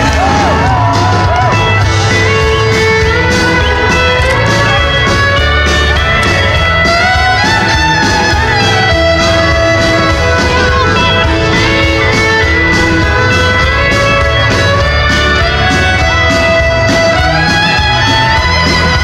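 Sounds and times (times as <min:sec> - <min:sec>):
electric bass: 0:00.0 - 0:19.0
steady drum beat: 0:00.0 - 0:19.0.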